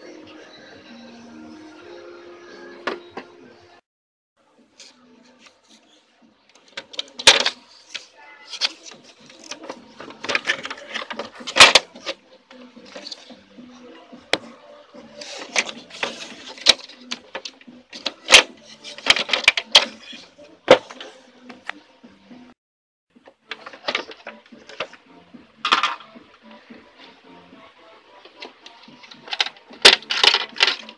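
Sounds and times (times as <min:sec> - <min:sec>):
plastic printer parts clicking and scraping: 0:06.5 - 0:12.2, 0:12.8 - 0:13.3, 0:15.2 - 0:21.2, 0:23.5 - 0:25.0, 0:25.6 - 0:26.1, 0:28.4 - 0:30.9.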